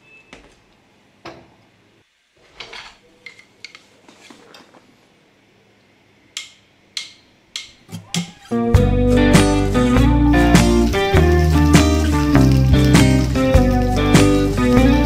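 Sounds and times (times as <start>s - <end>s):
kitchenware clicks and taps: 6.4s - 8.5s.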